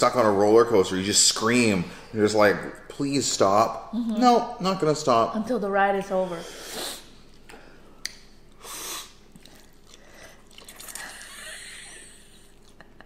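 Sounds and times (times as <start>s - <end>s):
chewing: 8.5s - 13.0s.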